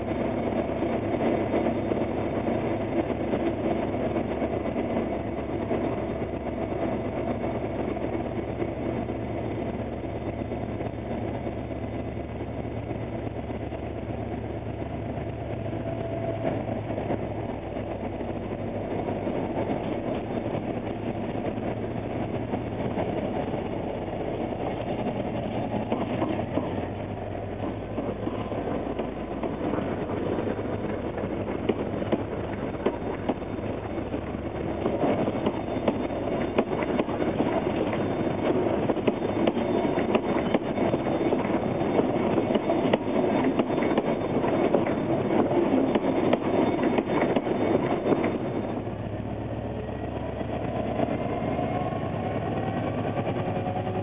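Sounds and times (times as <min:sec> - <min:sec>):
diesel locomotive engine hum: 0:00.0 - 0:54.0
wheels clicking over rail joints: 0:19.4 - 0:49.0.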